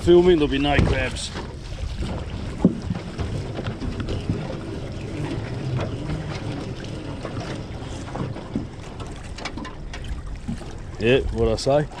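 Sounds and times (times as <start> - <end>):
water: 0.0 - 12.0
wind: 0.0 - 12.0
rope knocking and rubbing: 0.7 - 10.8.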